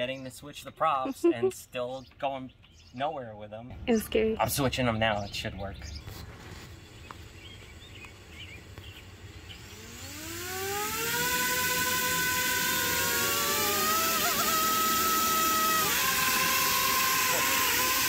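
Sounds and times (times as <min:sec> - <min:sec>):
quadcopter motors whining: 0:01.1 - 0:01.5, 0:06.3 - 0:18.0.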